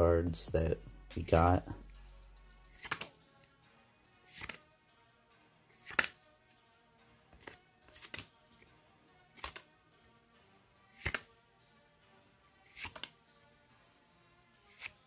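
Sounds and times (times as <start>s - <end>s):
faint background music: 0.0s - 15.0s
cards swishing off a stack: 2.7s - 3.2s, 4.3s - 4.6s, 5.7s - 6.2s, 7.4s - 8.7s, 9.4s - 9.7s, 10.9s - 11.3s, 12.6s - 13.2s, 14.7s - 15.0s.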